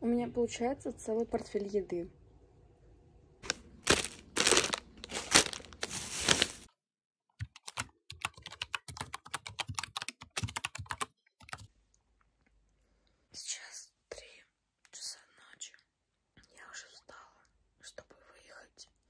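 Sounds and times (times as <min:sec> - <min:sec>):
plastic packaging crinkling: 0:03.4 - 0:06.7.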